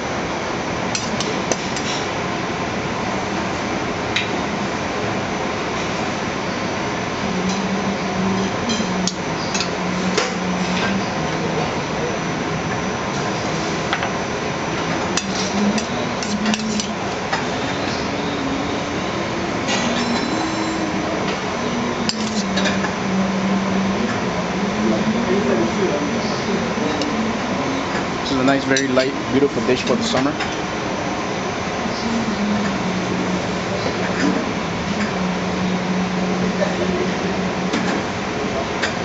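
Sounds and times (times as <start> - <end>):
kitchen background noise: 7.2 - 31.2.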